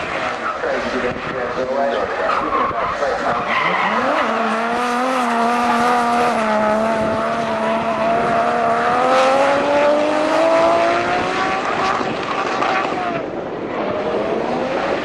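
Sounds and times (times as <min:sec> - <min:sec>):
car engine running hard: 0:00.0 - 0:15.0
tyre squeal: 0:02.3 - 0:05.0.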